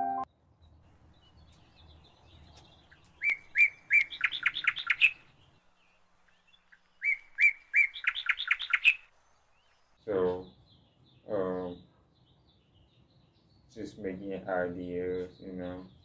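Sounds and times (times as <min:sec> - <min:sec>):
songbird singing: 0:00.0 - 0:16.0.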